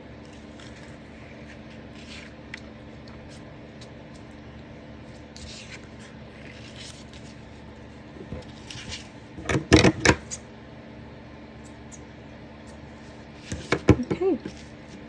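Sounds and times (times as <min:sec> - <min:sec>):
lace and paper rustling: 0:00.2 - 0:04.4, 0:05.0 - 0:07.8.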